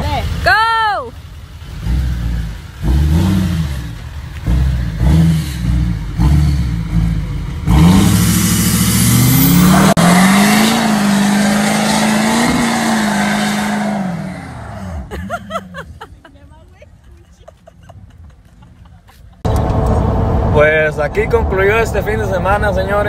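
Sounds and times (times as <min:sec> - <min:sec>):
spinning tyres hissing: 0:00.0 - 0:15.1
truck engine revving: 0:01.2 - 0:15.8, 0:19.4 - 0:23.0.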